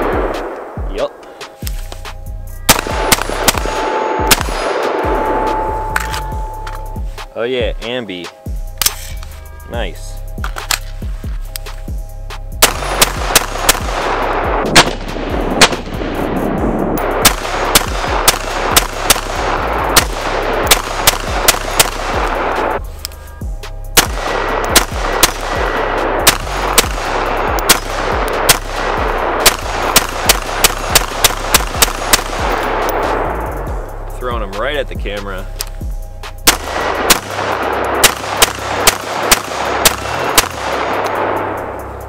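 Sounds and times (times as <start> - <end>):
rifle shots: 2.7 - 6.6, 12.6 - 22.8, 24.0 - 33.4, 36.4 - 41.8.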